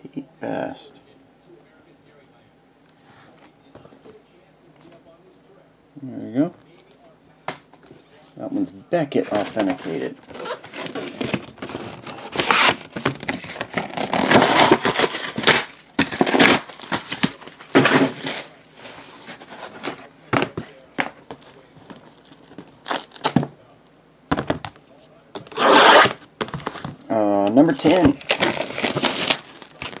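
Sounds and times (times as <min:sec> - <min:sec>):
plastic wrap tearing and crinkling: 0:10.2 - 0:18.6, 0:21.9 - 0:23.4, 0:27.8 - 0:30.0.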